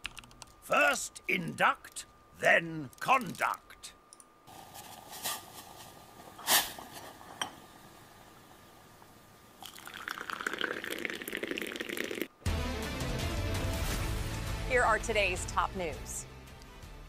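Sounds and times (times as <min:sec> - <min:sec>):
faint hiss: 0:03.4 - 0:12.4
tea pouring into cup: 0:09.6 - 0:12.3.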